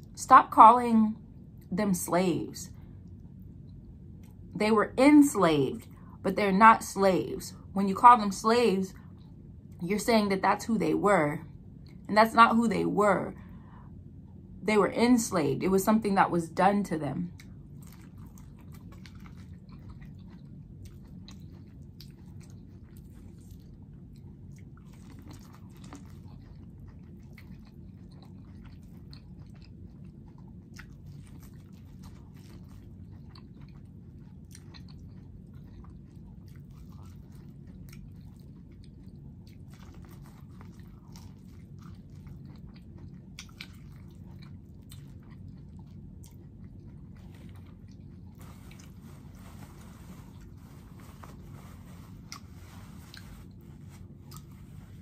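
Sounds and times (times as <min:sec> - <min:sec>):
low steady hum: 0:00.0 - 0:55.0
chewing corn on the cob: 0:17.3 - 0:55.0.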